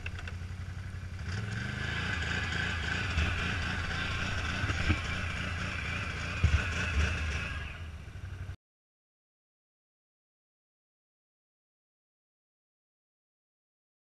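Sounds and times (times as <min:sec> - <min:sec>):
atv engine running: 0:00.0 - 0:08.6.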